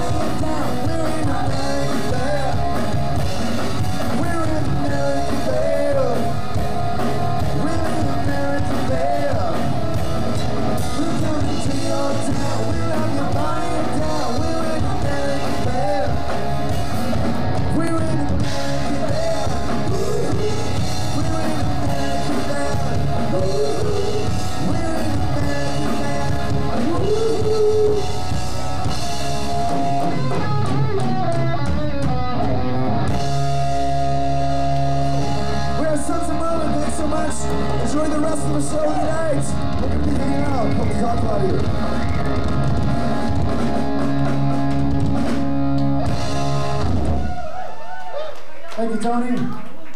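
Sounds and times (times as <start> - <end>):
man singing lead vocal: 0.0 - 3.2, 4.0 - 6.7, 7.4 - 10.1, 10.7 - 16.6, 17.6 - 28.3, 35.8 - 41.7
live rock band playing: 0.0 - 48.0.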